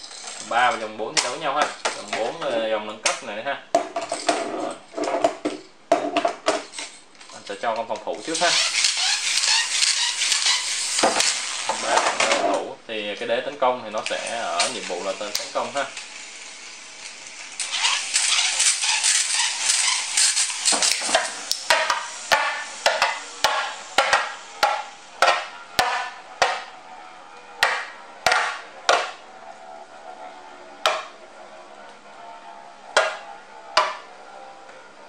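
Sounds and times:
spinning tops clashing: 8.4s - 12.2s, 17.6s - 26.7s.

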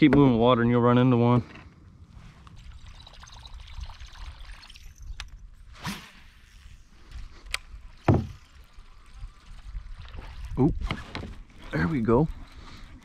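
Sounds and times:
water lapping around a kayak: 6.3s - 13.0s
low thud: 8.0s - 8.4s.

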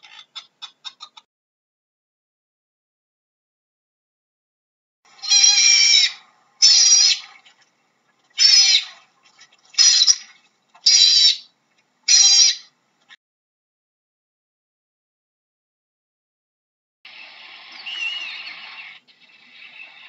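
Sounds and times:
otter calling: 5.1s - 7.5s, 8.4s - 11.5s, 12.1s - 12.7s, 17.1s - 20.0s.

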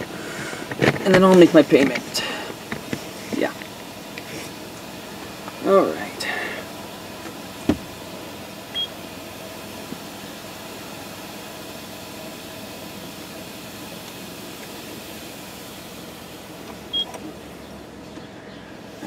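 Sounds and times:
car wash spraying: 0.0s - 19.0s.

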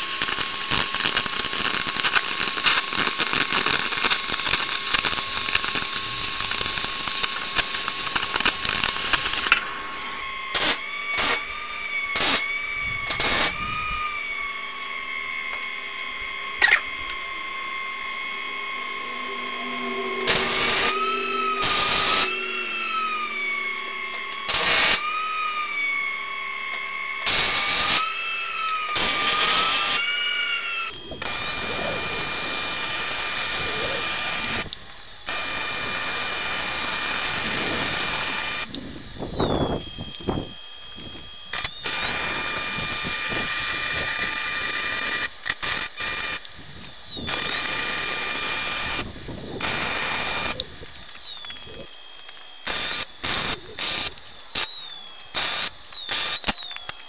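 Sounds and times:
welding bursts: 0.0s - 14.5s, 15.4s - 57.0s
steady hum: 0.0s - 27.7s, 28.4s - 44.2s
cutting torch hissing: 0.0s - 57.0s.

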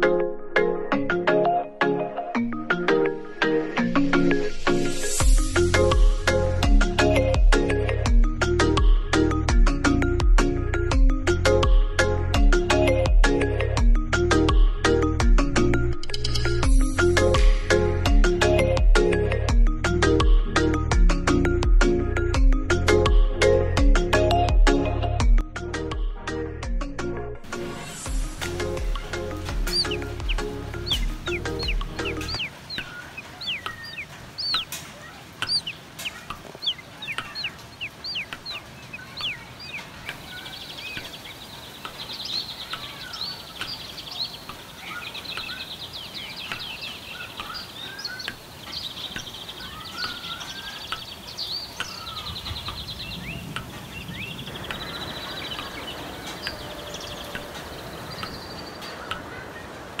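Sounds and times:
birds chirping: 27.5s - 60.0s
fast buzzing bird trills: 28.8s - 34.7s, 35.4s - 41.0s.

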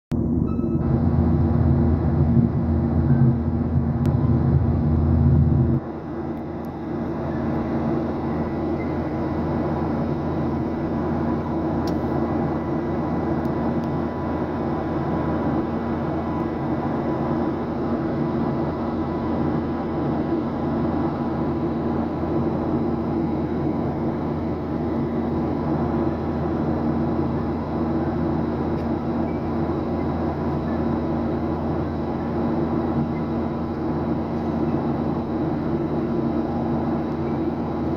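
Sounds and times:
heavy low rumble: 0.1s - 28.8s
jet engines droning: 0.1s - 37.9s
rush of air in cabin: 0.2s - 37.9s.

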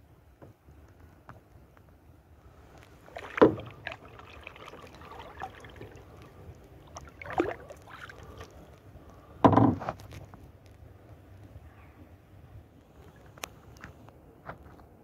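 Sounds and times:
faint water sounds: 0.7s - 14.9s
paddle dipping in water: 2.5s - 9.4s.

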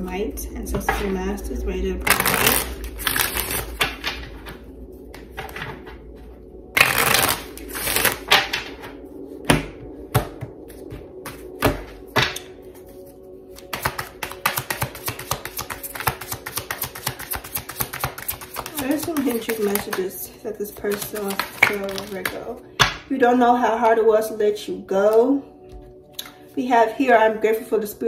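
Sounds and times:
cards rustling while shuffled: 2.1s - 5.9s, 6.8s - 8.6s, 12.8s - 22.4s.

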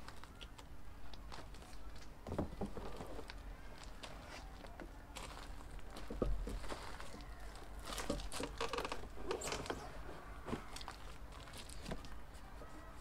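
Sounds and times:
packaging rustling and crinkling: 10.5s - 12.2s.

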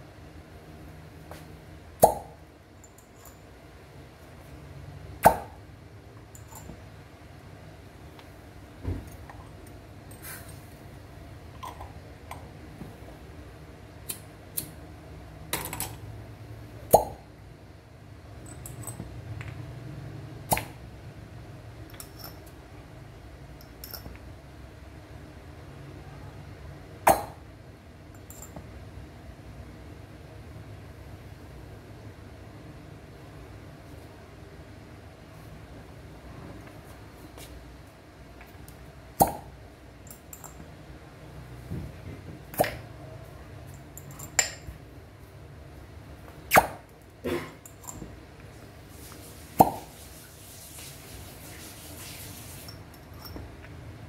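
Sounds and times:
glass cup popping on skin: 27.1s - 27.4s
glass cups clinking: 44.0s - 44.7s, 52.6s - 53.5s.

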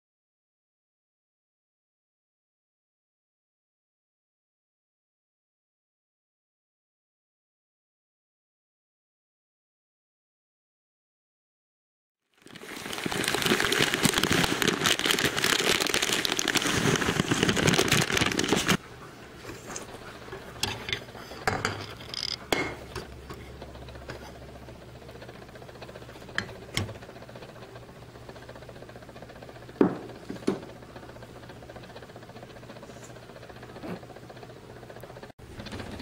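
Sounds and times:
dense crackling rustle: 12.3s - 18.8s
low steady hum: 12.5s - 36.0s.

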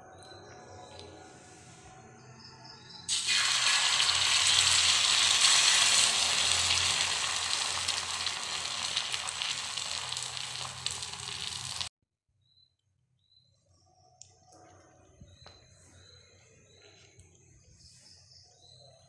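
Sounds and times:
egg sizzling in hot oil: 3.1s - 11.9s.

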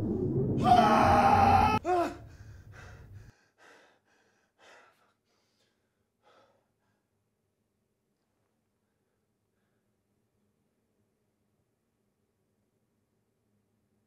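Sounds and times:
man gasping: 2.0s - 6.7s
man breathing: 2.2s - 7.1s.

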